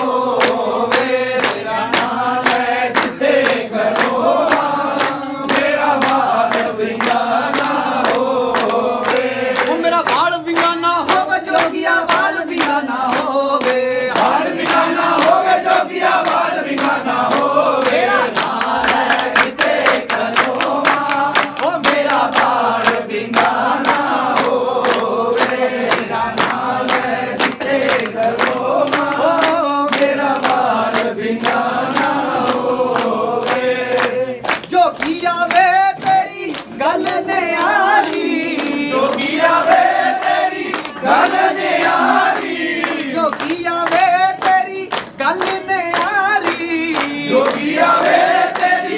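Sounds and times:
fast percussive beat: 0:00.0 - 0:40.4
group of voices singing: 0:00.0 - 0:48.9.

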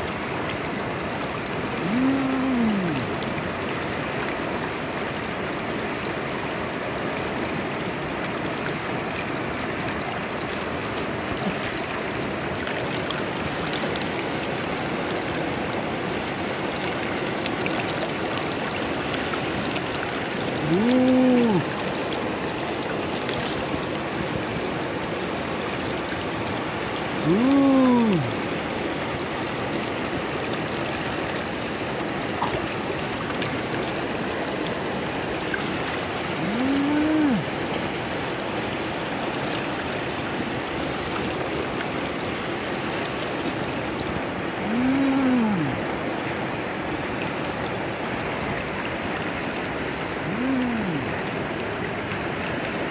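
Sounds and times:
river water running over rocks: 0:00.0 - 0:52.9.

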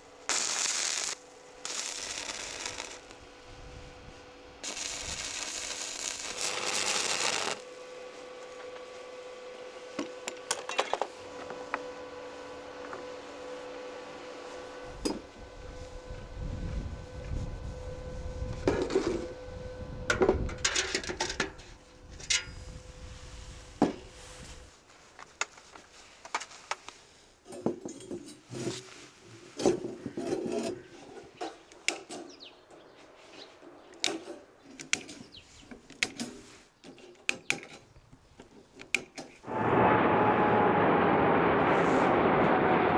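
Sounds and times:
low steady rumble: 0:39.5 - 0:42.9.

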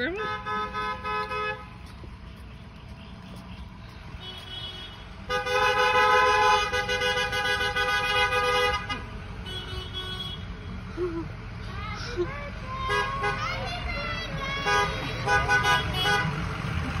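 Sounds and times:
car horns honking: 0:00.0 - 0:01.9, 0:04.1 - 0:10.8, 0:12.7 - 0:16.7
low rumble of engines: 0:00.0 - 0:17.0.

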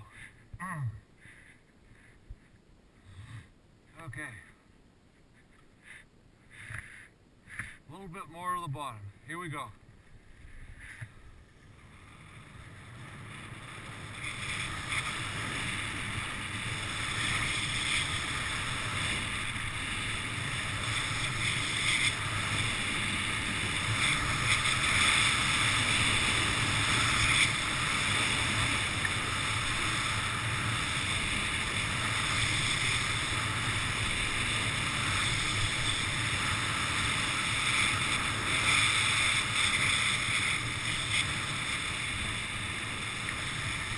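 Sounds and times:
skis hissing on snow: 0:11.9 - 0:43.9.

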